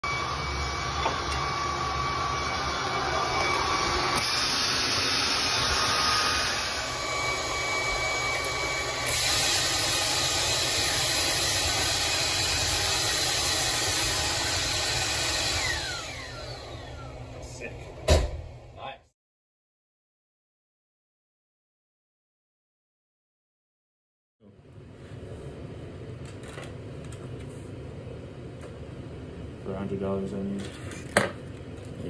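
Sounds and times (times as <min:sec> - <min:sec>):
vacuum cleaner running: 0:00.0 - 0:18.2.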